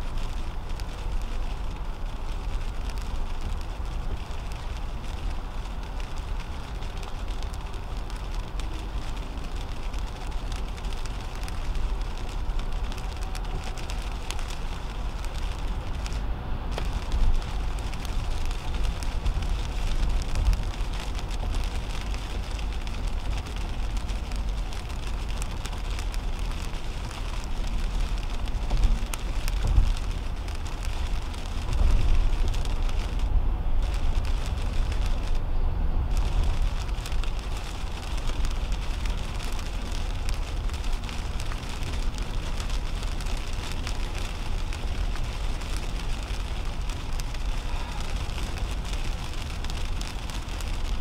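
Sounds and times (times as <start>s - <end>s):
raindrops ticking on windshield: 0.0s - 51.0s
tyre noise on wet road: 0.0s - 51.0s.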